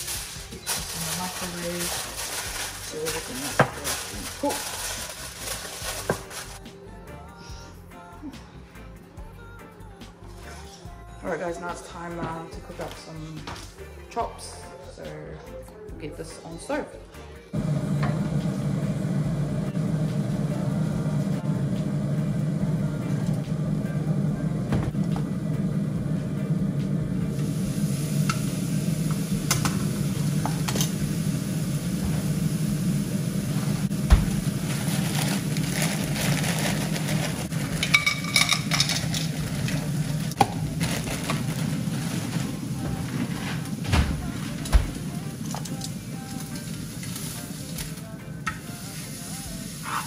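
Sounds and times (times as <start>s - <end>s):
plastic bag rustling: 0.0s - 6.6s, 33.6s - 46.8s
meat sizzling in a pan: 27.4s - 42.7s, 48.6s - 50.0s.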